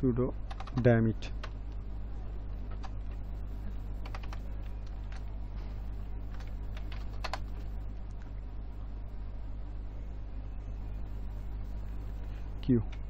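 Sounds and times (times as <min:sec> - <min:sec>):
steady low hum: 0:00.0 - 0:13.0
keyboard keys tapping: 0:00.5 - 0:00.8, 0:04.0 - 0:05.3, 0:06.3 - 0:07.6.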